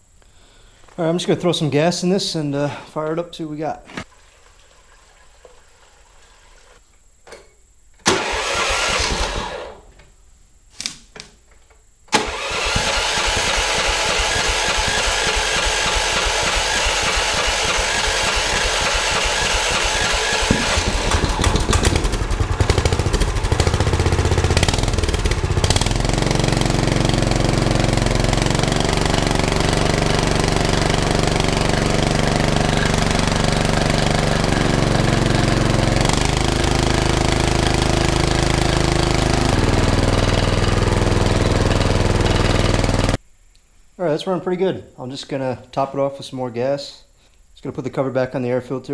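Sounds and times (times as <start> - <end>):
small engine starting and running: 8.1 - 9.8, 12.1 - 43.2.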